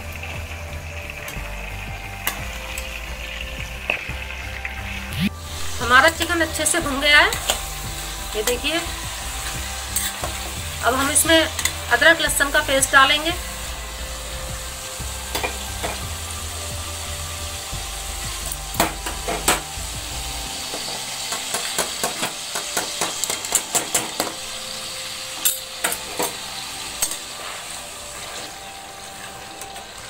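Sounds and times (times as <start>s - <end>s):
chicken sizzling in hot oil: 0.0s - 30.0s
metal spatula scraping pan: 9.9s - 10.6s.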